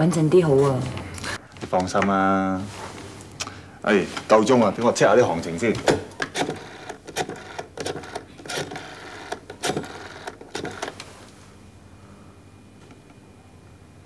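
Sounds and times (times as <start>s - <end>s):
rotary dial clicking whirrs: 5.8s - 11.1s.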